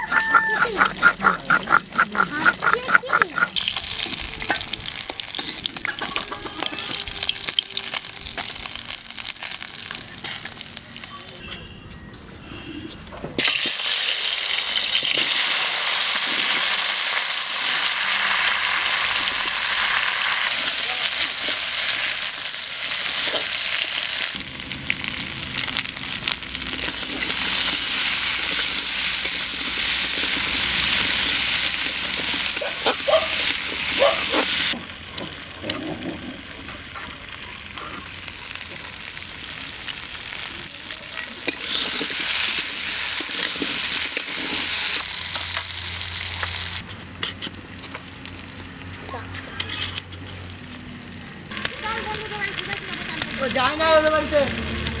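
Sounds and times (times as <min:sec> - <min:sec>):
potatoes sizzling in hot oil: 0:02.7 - 0:11.4, 0:13.4 - 0:46.8, 0:51.5 - 0:55.0
metal spatula scraping a wok: 0:41.5 - 0:45.8.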